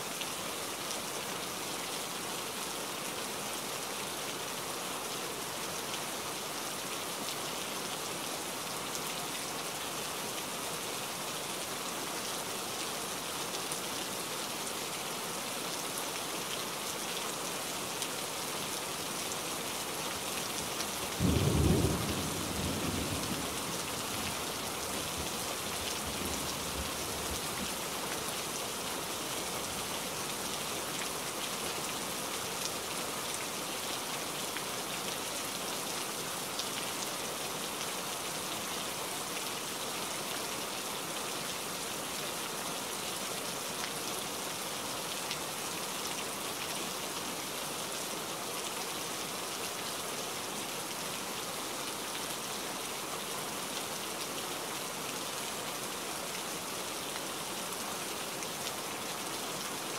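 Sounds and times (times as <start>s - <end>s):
rain on leaves: 0.0s - 59.9s.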